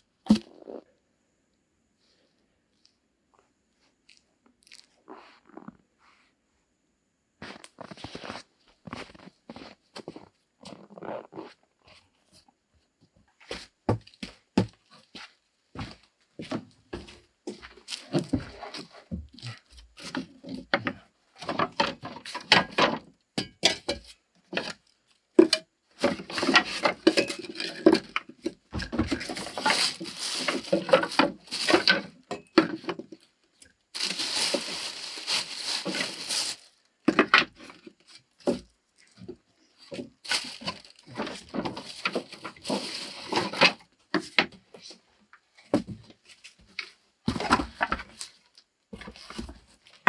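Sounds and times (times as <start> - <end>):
wooden boards clattering: 25.4 - 33.1
wood scraping rustle: 26.0 - 33.2, 34.0 - 38.6, 39.2 - 44.9.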